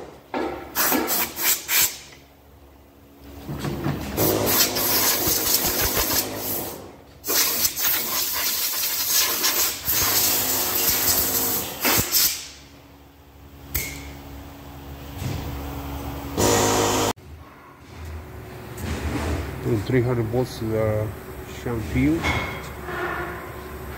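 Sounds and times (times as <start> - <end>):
compressed air blasting: 0.7 - 2.2, 4.2 - 12.6.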